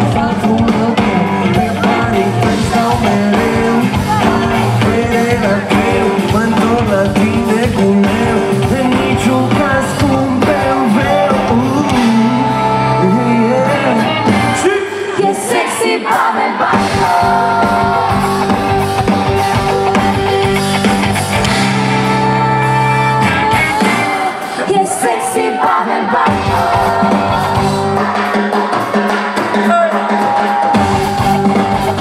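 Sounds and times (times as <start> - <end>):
man singing into microphone: 0.0 - 15.6
backing singers: 0.0 - 32.0
live band music: 0.0 - 32.0.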